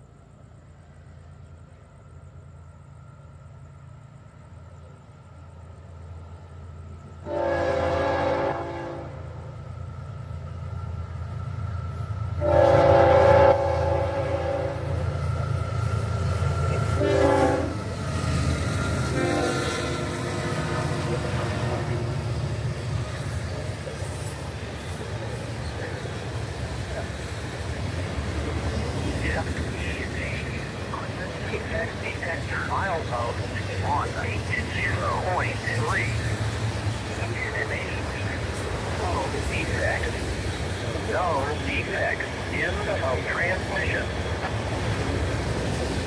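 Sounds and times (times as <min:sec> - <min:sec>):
diesel locomotive rumble: 0:00.0 - 0:46.0
train air horn blasts: 0:07.2 - 0:09.5, 0:12.4 - 0:15.1, 0:16.8 - 0:17.9, 0:19.0 - 0:22.2.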